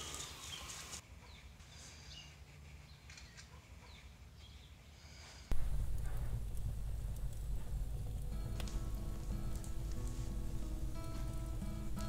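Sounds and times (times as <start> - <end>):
music with heavy low start: 5.6 - 12.0.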